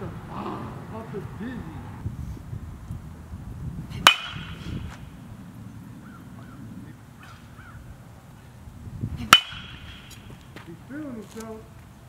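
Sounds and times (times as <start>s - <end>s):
baseball bat cracking ball: 4.0s - 5.2s, 9.3s - 10.8s.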